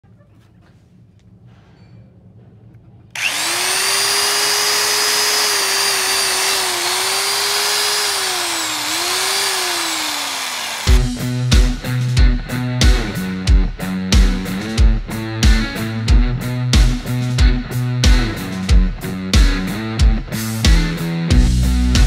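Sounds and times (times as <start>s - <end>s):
electric drill motor whine: 3.2s - 11.0s.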